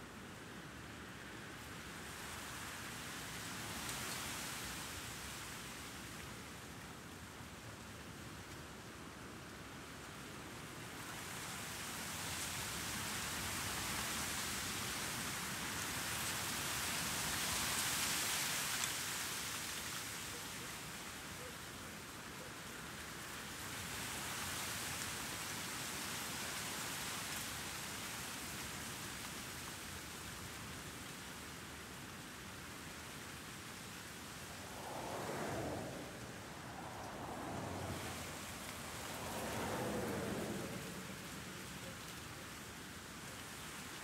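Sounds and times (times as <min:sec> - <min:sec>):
light city noise: 0:00.0 - 0:44.0
breeze blowing in gusts: 0:22.8 - 0:44.0.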